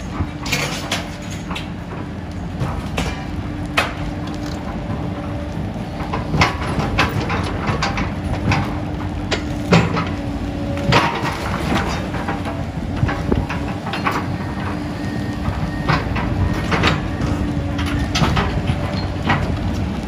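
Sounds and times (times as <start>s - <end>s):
crunches and clanks of debris: 0.0s - 20.0s
excavator engine hum: 0.0s - 20.0s.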